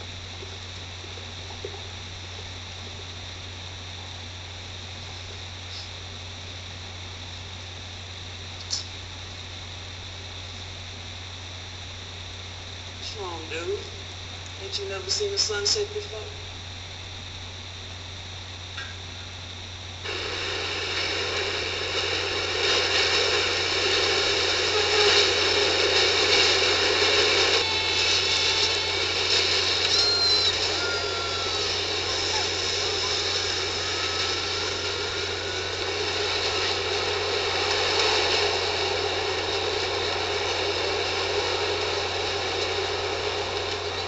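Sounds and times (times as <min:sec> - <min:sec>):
subway train rumbling: 0:20.0 - 0:44.0
train wheels squealing: 0:27.6 - 0:35.8.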